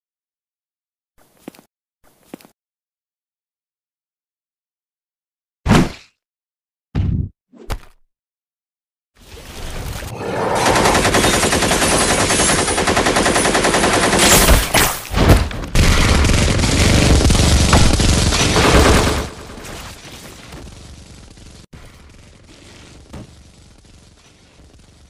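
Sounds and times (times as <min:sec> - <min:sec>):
automatic gunfire: 0:10.6 - 0:14.6, 0:15.8 - 0:19.6
loud blasts: 0:15.2 - 0:25.0.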